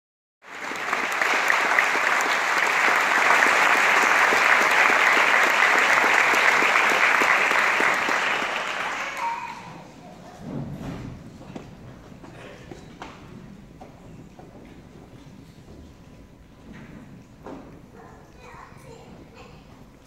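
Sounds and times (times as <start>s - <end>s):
audience applauding: 0.4s - 10.0s.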